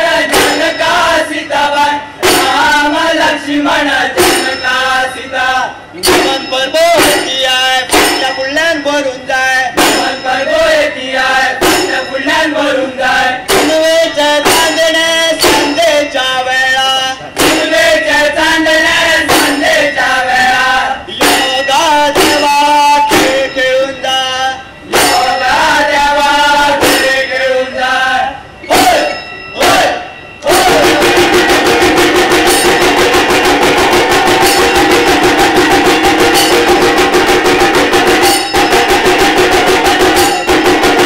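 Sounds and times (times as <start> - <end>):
men singing folk song: 0.0 - 31.4
barrel drum beating: 0.2 - 0.8, 2.2 - 2.9, 4.1 - 4.6, 6.0 - 8.4, 9.8 - 10.2, 11.6 - 12.1, 13.5 - 15.8, 17.4 - 17.9, 19.2 - 19.8, 21.2 - 23.6, 24.9 - 25.4, 26.8 - 27.3, 30.5 - 41.0
sharp clanging strokes: 4.2 - 5.0, 24.9 - 25.6, 26.8 - 27.5, 30.5 - 41.0.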